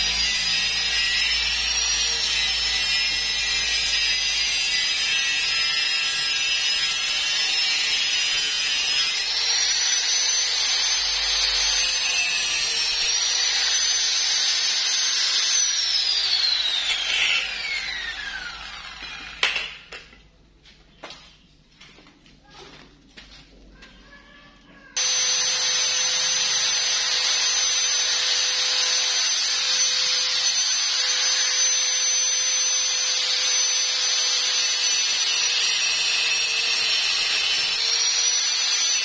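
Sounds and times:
angle grinder cutting metal pipe: 0.0s - 20.2s, 25.0s - 39.0s
grinder disc spinning down: 9.2s - 20.0s
clatter on concrete floor: 18.9s - 20.3s.

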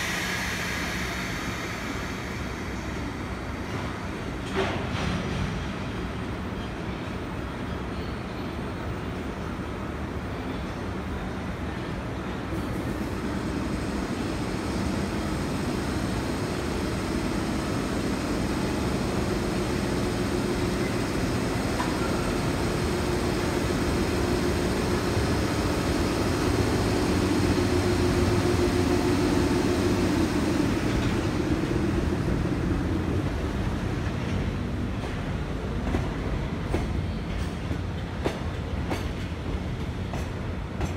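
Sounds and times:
electric locomotive blowers humming: 12.6s - 34.6s.

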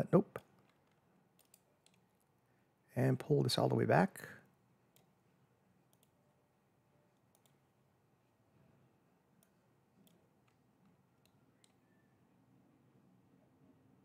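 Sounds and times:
computer mouse clicks: 0.4s - 2.3s, 4.9s - 5.1s, 5.9s - 6.2s, 7.1s - 7.6s, 9.4s - 11.9s.

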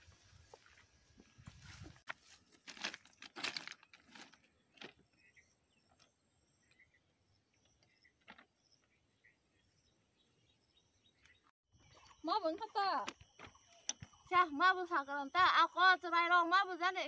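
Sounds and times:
footsteps on ballast stones: 0.5s - 5.1s.

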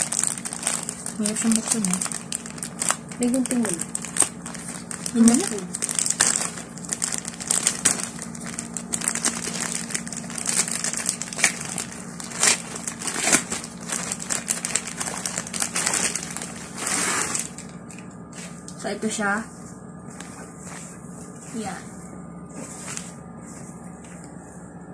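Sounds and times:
plastic mailer pouch crinkling: 0.0s - 18.0s.

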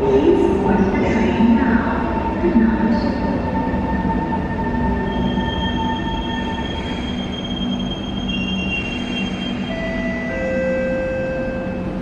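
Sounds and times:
high-pitched brake squealing: 5.0s - 10.7s.

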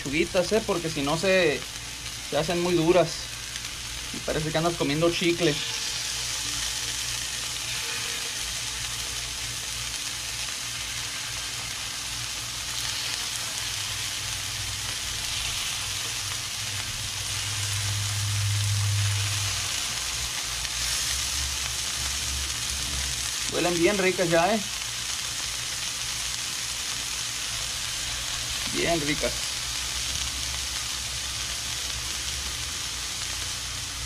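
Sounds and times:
meat sizzling in oil: 0.0s - 34.0s
low hum: 4.9s - 23.2s.

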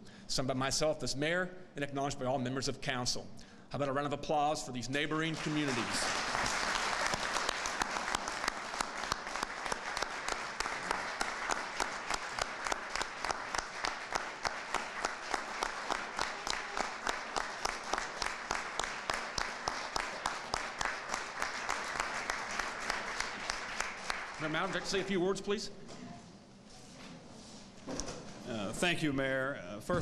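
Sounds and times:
audience applauding: 5.1s - 25.1s.

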